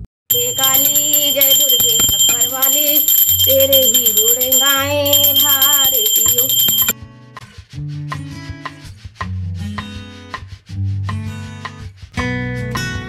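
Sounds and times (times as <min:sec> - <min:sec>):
brass hand bell ringing: 0:00.3 - 0:06.9.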